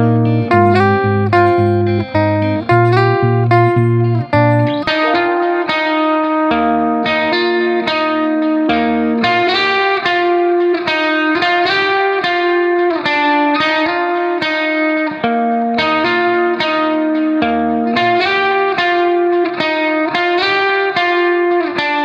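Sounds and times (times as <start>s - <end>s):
guitar picking notes: 0.0s - 22.0s
low bass note: 0.5s - 5.3s.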